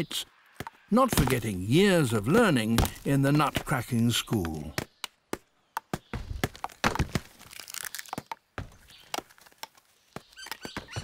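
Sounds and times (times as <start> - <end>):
stones knocking on stone anvil: 2.2 - 3.7.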